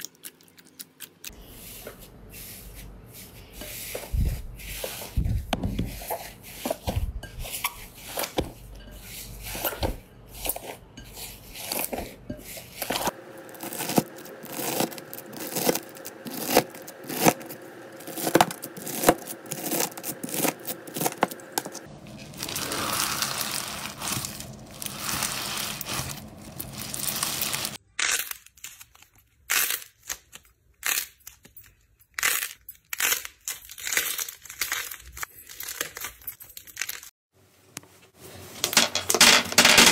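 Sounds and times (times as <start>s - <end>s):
knife cutting crunchy slime: 12.7s - 21.7s
slime stretched and torn: 22.4s - 31.2s.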